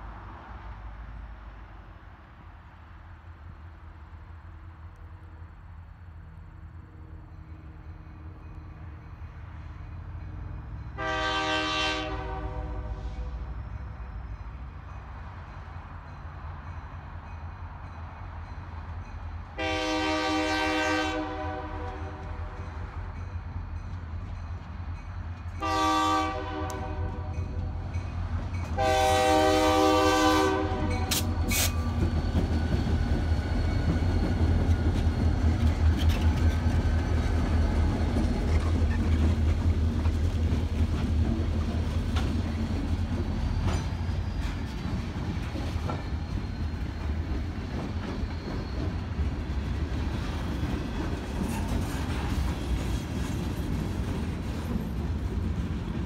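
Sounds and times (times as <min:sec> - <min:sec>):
locomotive air horn: 0:11.0 - 0:13.5, 0:19.6 - 0:22.6, 0:25.6 - 0:27.4, 0:28.8 - 0:31.7
train wheels clicking on rails: 0:30.6 - 0:56.0.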